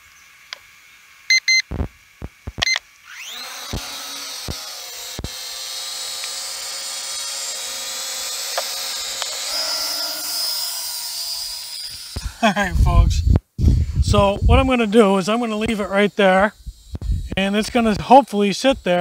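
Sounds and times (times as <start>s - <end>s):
short electronic beeps: 1.3s - 1.6s
drone motors whining: 2.3s - 19.0s.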